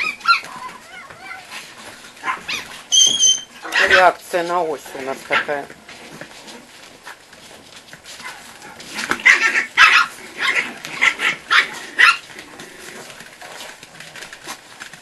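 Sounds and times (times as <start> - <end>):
small dogs barking: 0.0 - 4.2, 8.2 - 12.3.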